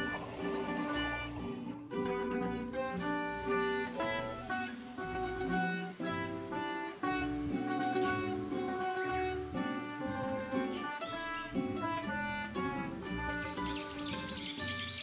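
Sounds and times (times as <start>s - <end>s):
low bass notes: 0.0s - 14.8s
plucked guitar melody: 0.0s - 15.0s.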